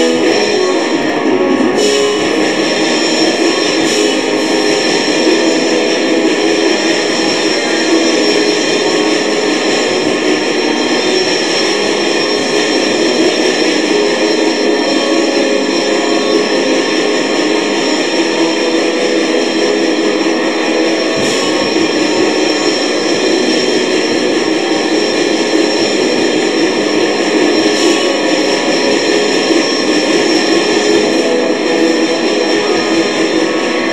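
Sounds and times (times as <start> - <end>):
distorted guitar black metal: 0.0 - 33.9.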